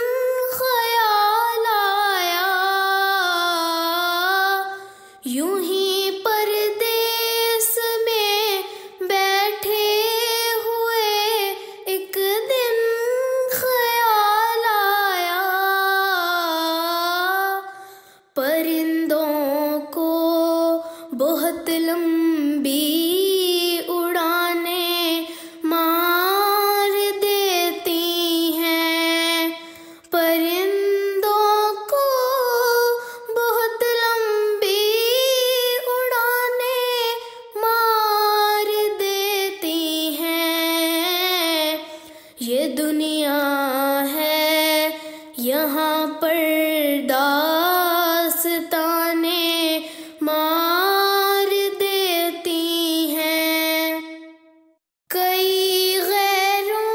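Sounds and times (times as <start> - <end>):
woman singing: 0.0 - 56.9.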